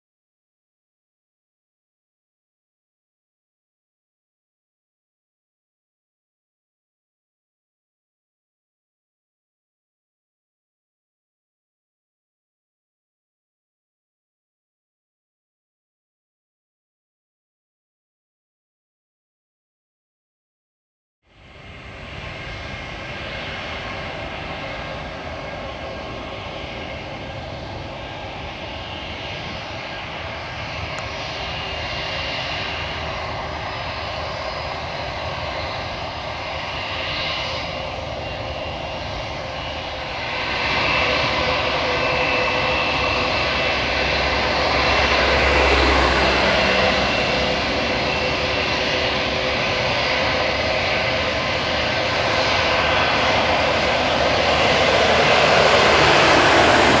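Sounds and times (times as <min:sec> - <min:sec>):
jet airliner taxiing: 0:21.3 - 0:57.0.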